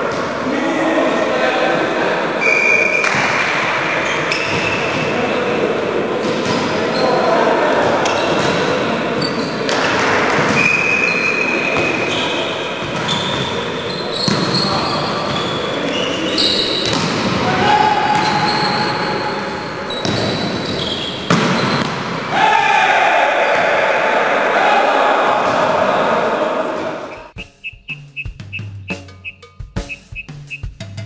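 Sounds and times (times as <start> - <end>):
players' voices: 0.0 - 28.0
volleyball struck and bouncing: 2.9 - 3.7, 6.2 - 6.9, 7.9 - 22.4.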